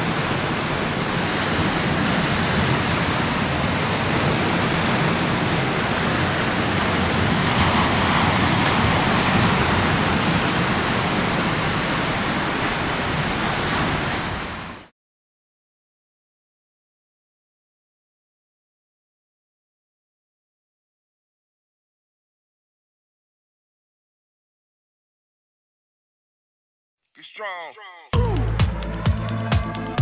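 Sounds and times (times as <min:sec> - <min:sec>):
choppy river water: 0:00.0 - 0:14.9.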